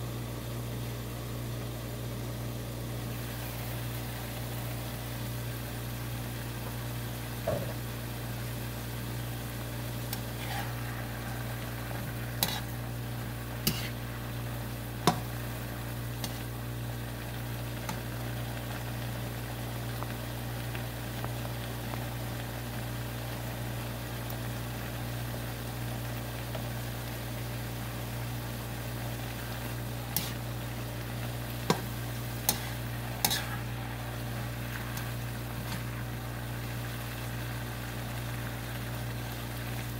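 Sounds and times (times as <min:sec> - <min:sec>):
food sizzling in a wok: 0:00.0 - 0:39.9
spatula clacking against pan: 0:32.5 - 0:33.5.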